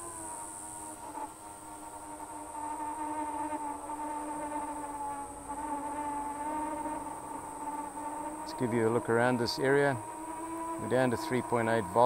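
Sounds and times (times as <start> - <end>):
drone propellers buzzing: 5.5 - 12.0.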